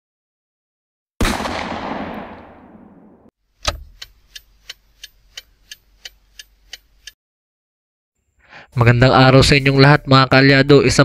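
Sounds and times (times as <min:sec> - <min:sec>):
short evenly spaced ticks: 0:03.5 - 0:07.2.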